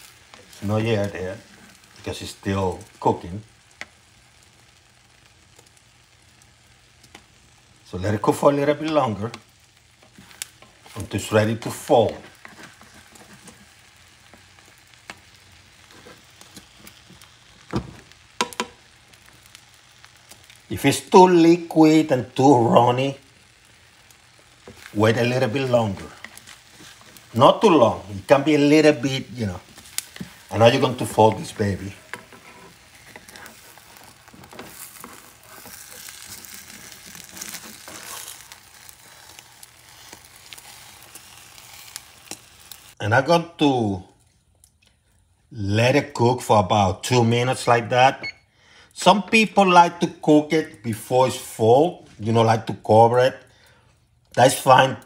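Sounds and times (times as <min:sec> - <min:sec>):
eggs sizzling in a frying pan: 0:00.0 - 0:55.0
spatula scraping and tapping: 0:12.1 - 0:13.7, 0:18.4 - 0:18.8, 0:29.7 - 0:30.5, 0:31.3 - 0:40.8
spatula knocking against pan: 0:18.4 - 0:18.8.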